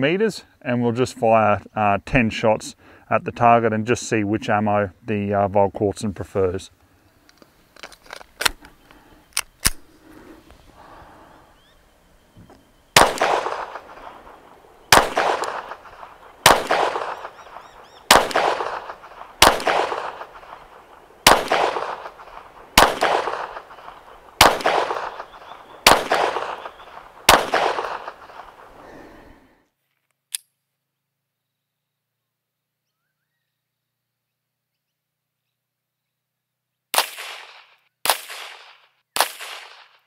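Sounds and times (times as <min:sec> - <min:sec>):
pistol shots: 0:13.0 - 0:28.8, 0:36.9 - 0:40.0
sharp clicks: 0:14.9 - 0:28.6.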